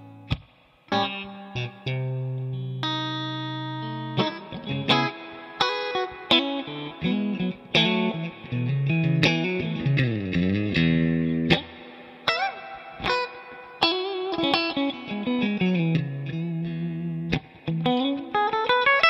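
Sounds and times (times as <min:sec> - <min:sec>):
electric guitar lead line: 0:00.0 - 0:19.0.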